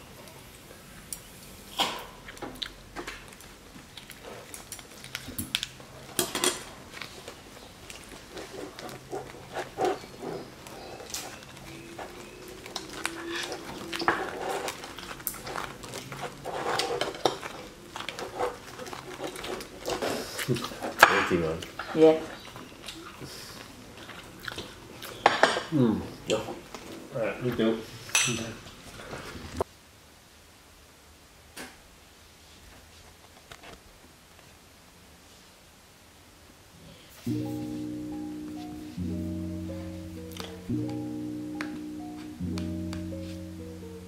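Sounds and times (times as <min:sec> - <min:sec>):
chopsticks clinking on ceramic plates: 0:28.1 - 0:28.5.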